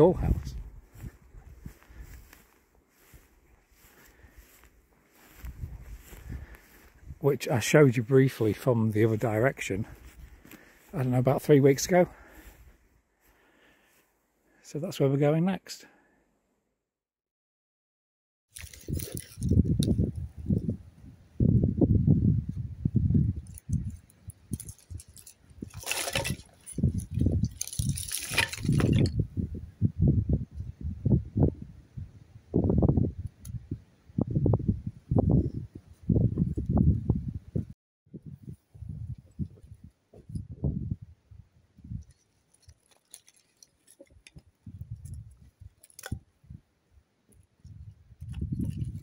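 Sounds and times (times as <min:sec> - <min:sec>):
wooden sticks clattering on stone: 0:23.5 - 0:29.2, 0:42.1 - 0:44.6.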